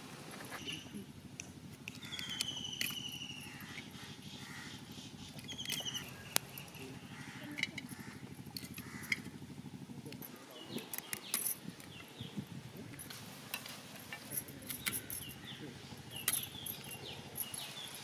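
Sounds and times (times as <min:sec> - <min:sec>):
low steady hum: 0:00.0 - 0:18.0
bird trilling: 0:00.5 - 0:01.0, 0:01.9 - 0:09.8
sharp clicks: 0:01.4 - 0:03.9, 0:10.1 - 0:12.1.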